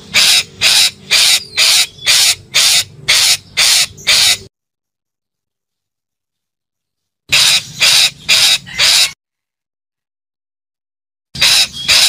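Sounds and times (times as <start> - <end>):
parakeet screeching calls: 0.0 - 4.5, 7.3 - 9.2, 11.4 - 12.0.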